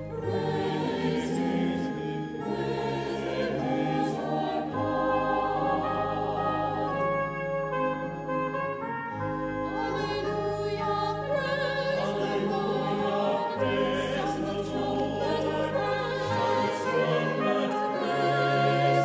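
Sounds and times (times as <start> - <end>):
choir singing in harmony: 0.0 - 19.0.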